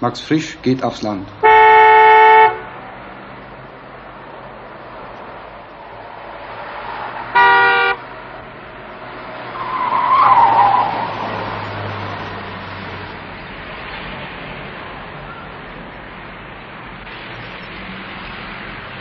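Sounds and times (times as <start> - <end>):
car engine and road noise: 0.0 - 19.0
car horn toot: 1.4 - 2.8, 7.3 - 8.0
tyre squeal: 9.6 - 12.4.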